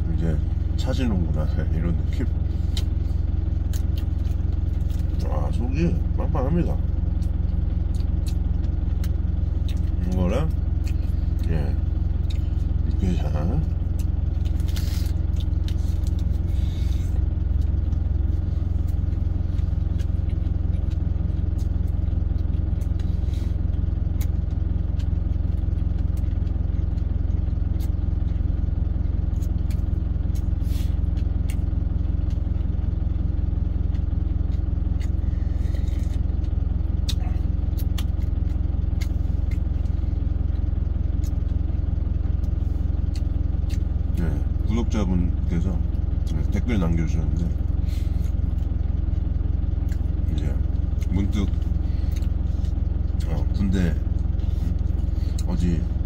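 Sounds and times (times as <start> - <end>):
truck engine idling: 0.0 - 56.0
eating sounds: 33.7 - 44.6.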